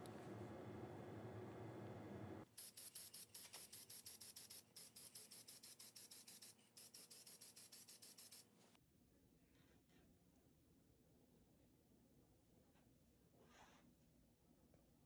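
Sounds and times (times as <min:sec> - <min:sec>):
spray paint can hissing bursts: 0:02.6 - 0:08.5.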